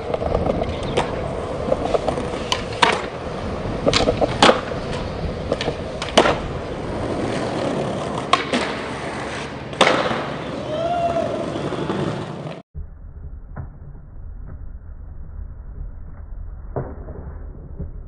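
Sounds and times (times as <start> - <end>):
skateboard clacking on landing: 0.0 - 8.8
skateboard wheels rolling on concrete: 0.0 - 12.6.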